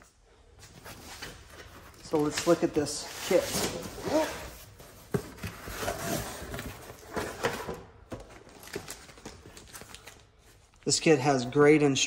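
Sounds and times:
cardboard scraping and rustling: 0.8s - 8.8s.

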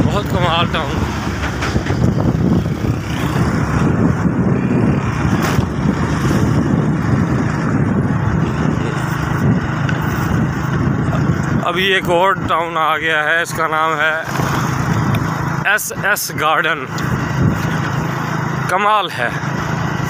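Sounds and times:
wind noise on microphone: 0.0s - 13.0s, 14.2s - 15.5s, 16.9s - 18.2s
motorcycle engine running: 0.0s - 20.0s.

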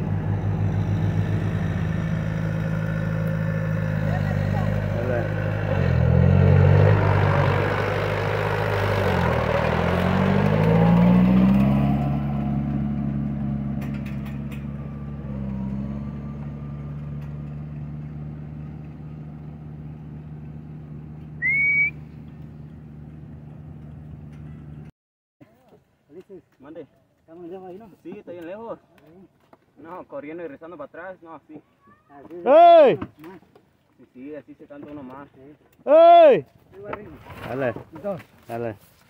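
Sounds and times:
tractor engine running: 0.0s - 24.9s
short loud whistle: 21.4s - 22.1s.

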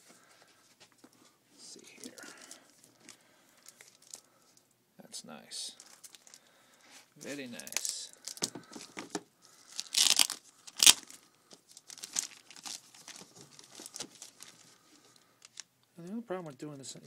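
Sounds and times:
packaging crinkling and rustling: 1.9s - 4.3s, 5.8s - 6.5s, 7.2s - 15.7s.

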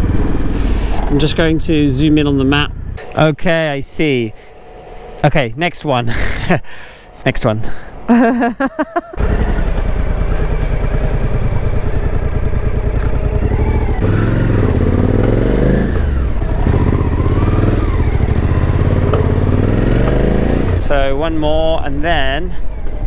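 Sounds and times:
motorcycle engine running: 0.0s - 1.3s, 9.2s - 21.6s.

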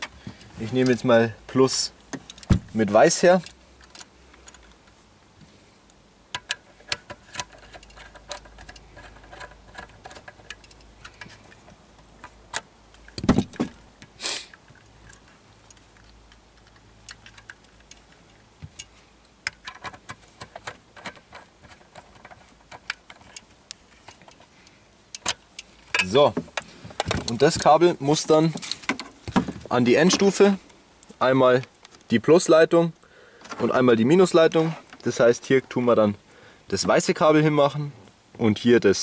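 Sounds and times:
small metallic clicks: 5.8s - 13.3s, 14.0s - 27.7s.

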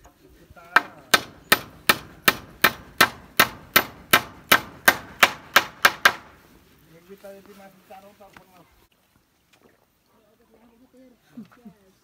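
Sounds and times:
hammer driving a nail: 0.8s - 6.4s.

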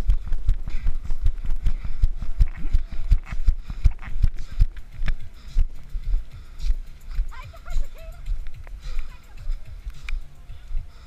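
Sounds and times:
footsteps on muddy ground: 0.0s - 11.0s.

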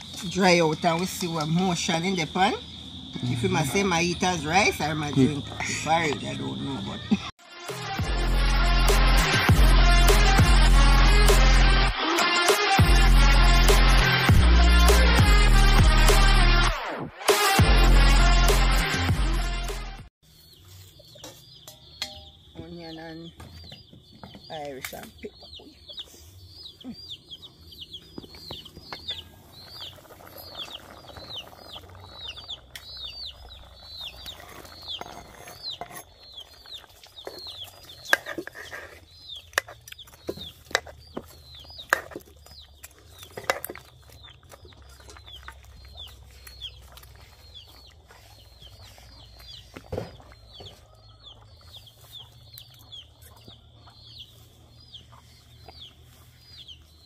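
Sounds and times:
chickens cheeping: 2.2s - 7.4s, 25.3s - 57.0s.

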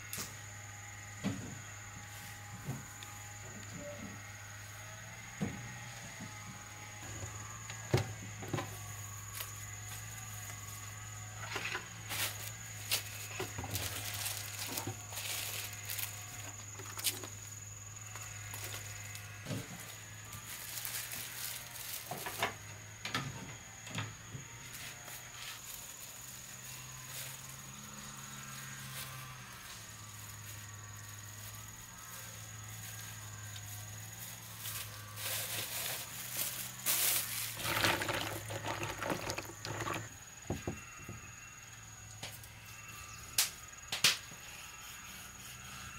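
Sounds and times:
high insect drone: 0.0s - 45.9s
plastic bags rustling: 35.2s - 40.1s
knocks and clatter of bowls: 37.6s - 40.8s.

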